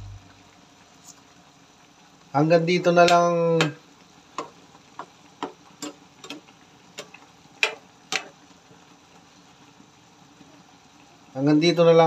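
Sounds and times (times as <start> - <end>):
metal ladle tapping a pan: 4.4 - 8.3.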